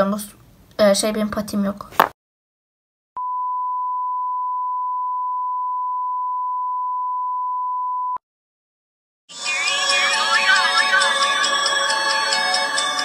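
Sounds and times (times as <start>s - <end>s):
single-pitch test tone beep: 3.2s - 8.2s
music: 9.3s - 13.0s.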